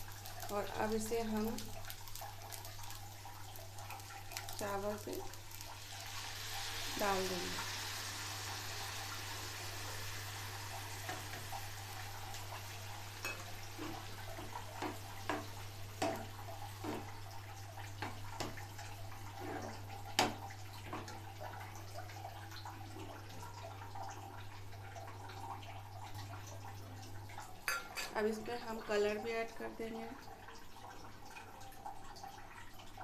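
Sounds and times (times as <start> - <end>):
syrup hissing in a hot pan: 0.0 - 17.4.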